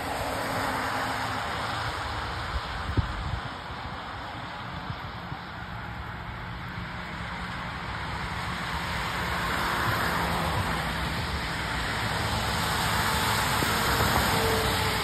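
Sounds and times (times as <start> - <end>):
tyres hissing on wet road: 0.0 - 15.0
vehicles passing close by: 0.0 - 15.0.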